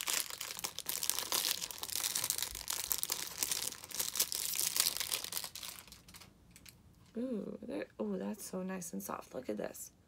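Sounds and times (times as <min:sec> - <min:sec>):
plastic packaging crinkling: 0:00.0 - 0:06.7.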